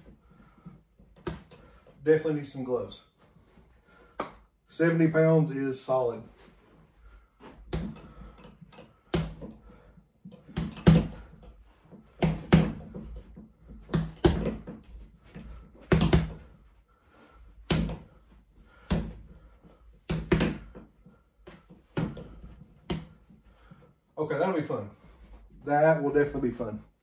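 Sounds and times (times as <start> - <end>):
fists punching heavy bag: 10.5 - 11.4, 12.0 - 13.0, 13.7 - 14.8, 15.9 - 16.5, 17.6 - 18.1, 18.8 - 19.3, 20.1 - 20.8.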